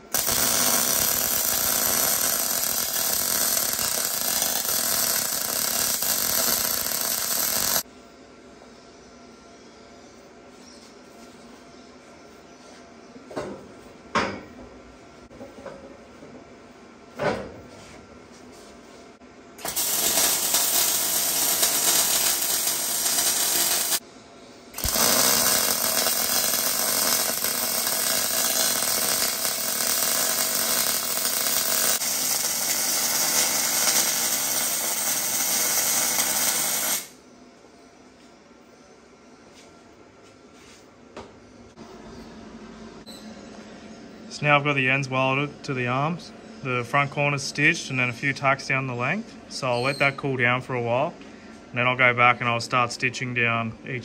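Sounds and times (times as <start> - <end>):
welder crackling hiss: 0.0 - 7.8, 19.6 - 24.0, 24.8 - 37.2.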